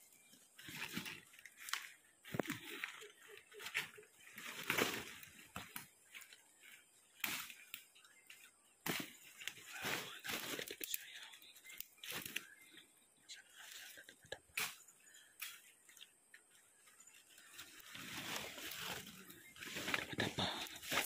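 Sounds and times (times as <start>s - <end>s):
branches brushing past: 0.6s - 11.3s, 16.9s - 21.0s
footsteps in leaf litter: 8.9s - 11.3s, 17.1s - 21.0s.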